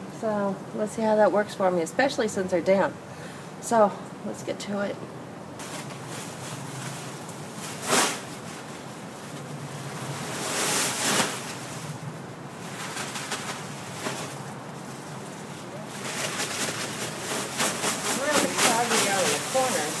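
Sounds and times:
plastic bag of leaves rustling: 5.6s - 20.0s.

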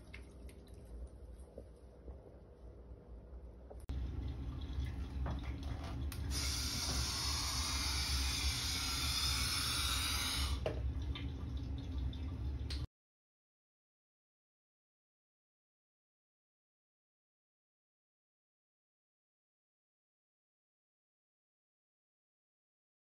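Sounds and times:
low steady hum: 0.0s - 12.9s
air hissing out of balloon: 6.3s - 10.6s.

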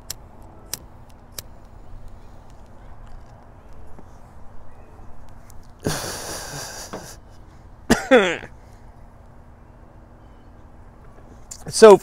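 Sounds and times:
man blowing out smoke: 5.8s - 7.2s
hoarse cough or gasp: 7.9s - 8.5s.

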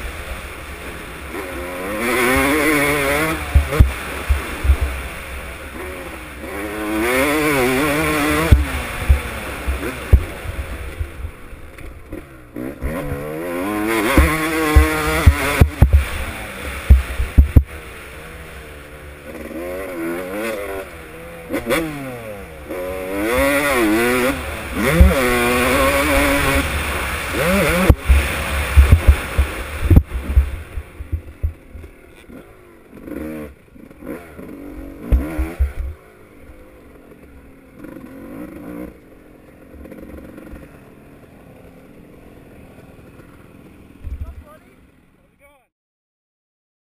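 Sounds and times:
dirt bike engine revving: 0.0s - 45.2s
sharp knocks: 14.1s - 16.1s, 16.9s - 17.7s.

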